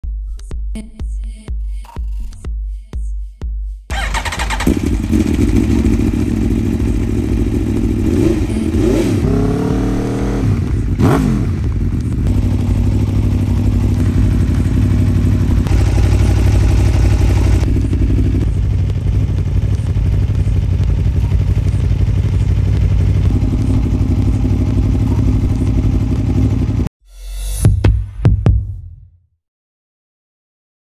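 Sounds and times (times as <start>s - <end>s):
motorcycle engine revving and idling: 3.9s - 26.9s.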